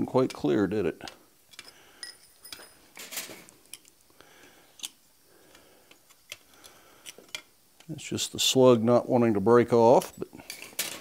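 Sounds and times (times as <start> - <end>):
metal clicks and clinks: 1.5 - 3.9.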